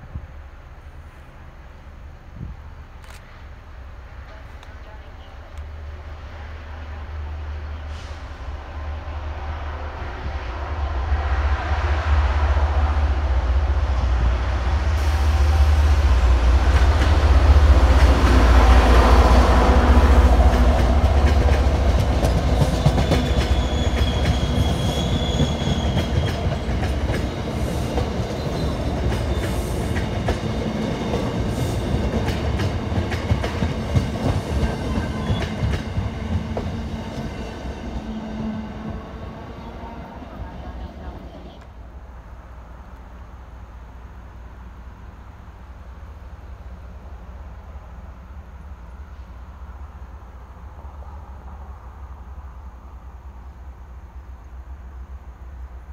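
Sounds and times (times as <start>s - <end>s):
train rumble: 0.0s - 55.9s
train wheels clacking over rail joints: 20.3s - 37.3s
high squeal: 22.3s - 26.4s.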